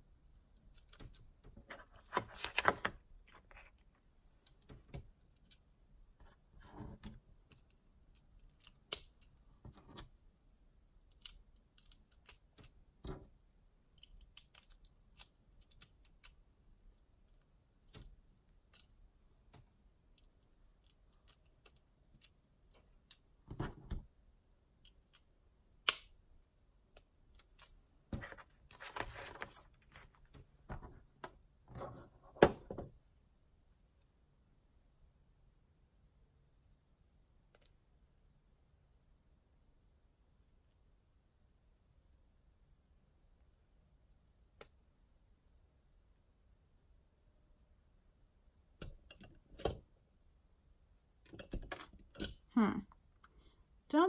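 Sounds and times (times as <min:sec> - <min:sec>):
plastic bricks clicking together: 0:13.9 - 0:16.4.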